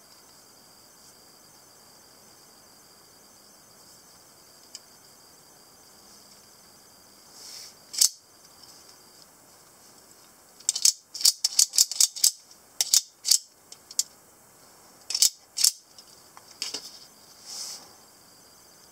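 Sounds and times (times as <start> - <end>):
knife blade clicks and snaps: 10.7 - 13.4.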